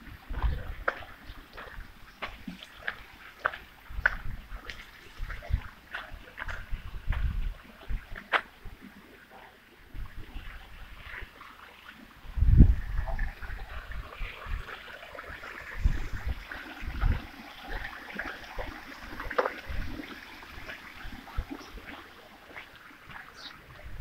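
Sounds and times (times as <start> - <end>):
wind buffeting microphone: 0.0 - 2.3, 3.4 - 8.8, 12.2 - 24.0
trickling water: 0.0 - 24.0.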